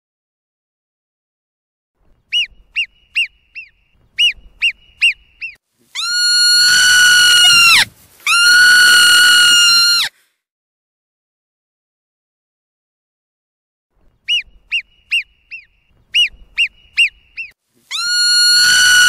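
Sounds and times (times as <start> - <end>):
marmot chirps: 2.3 - 10.1, 14.2 - 19.0
marmot long whistles: 2.3 - 10.1, 14.3 - 19.0.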